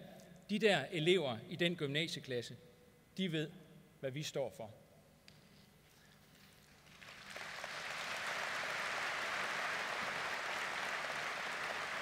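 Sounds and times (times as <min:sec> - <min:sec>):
large audience applauding: 0:06.8 - 0:12.0.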